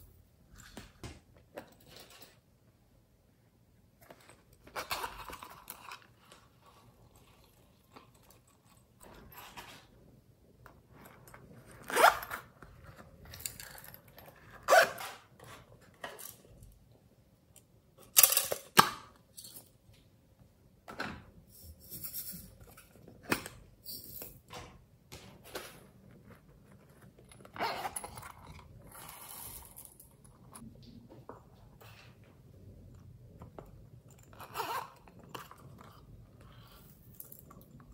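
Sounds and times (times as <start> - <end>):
zipper opening on plastic pouch: 34.3 - 36.0.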